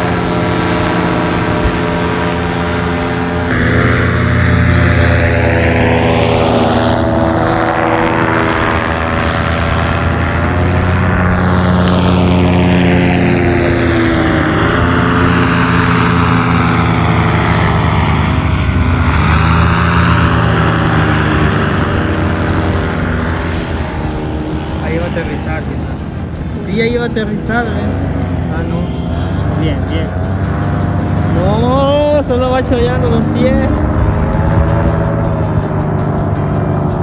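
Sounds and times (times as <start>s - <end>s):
paramotor engine droning overhead: 0.0s - 37.0s.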